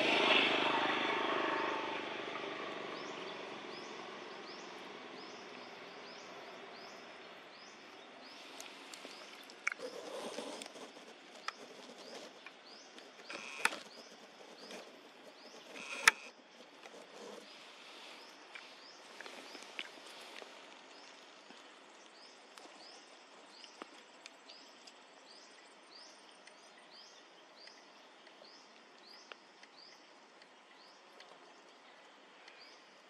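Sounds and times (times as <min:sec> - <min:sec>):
engine drone: 0:00.0 - 0:07.7, 0:08.3 - 0:21.1
small bird chirping: 0:06.0 - 0:30.0.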